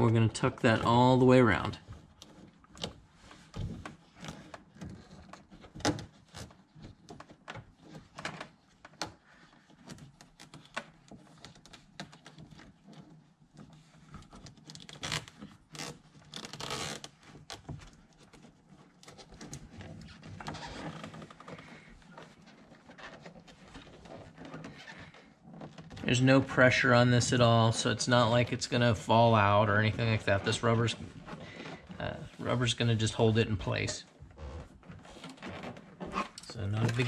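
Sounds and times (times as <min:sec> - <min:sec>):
wire scraping rubber seal: 0:09.4 - 0:26.0.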